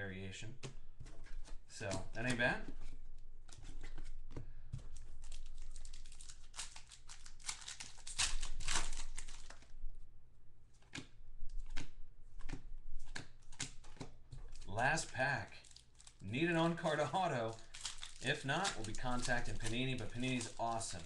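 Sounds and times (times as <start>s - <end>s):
cards rustling and clicking: 0.6s - 9.7s, 10.7s - 21.0s
plastic wrapper crinkling and tearing: 4.8s - 9.8s, 10.9s - 21.0s.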